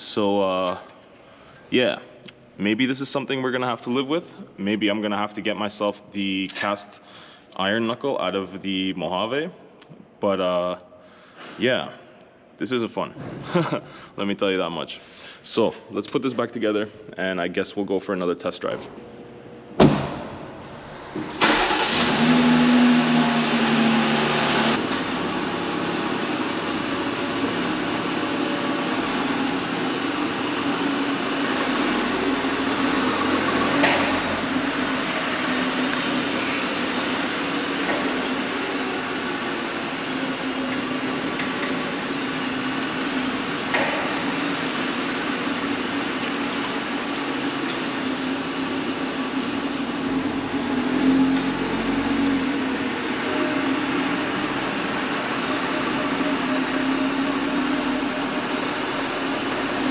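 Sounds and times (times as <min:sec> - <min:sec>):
engine starting and running: 0:19.0 - 0:59.9.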